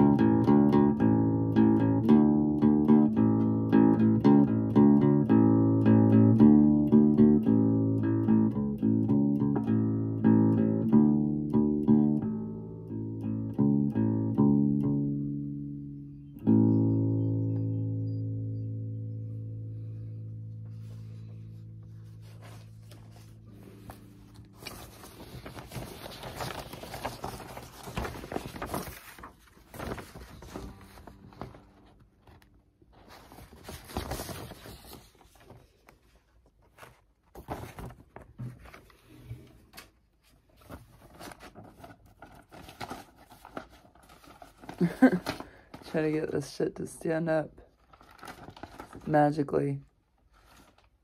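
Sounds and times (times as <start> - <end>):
acoustic bass guitar note: 0.0 - 24.9
rustling and scraping of handling: 20.4 - 46.9, 47.7 - 51.0.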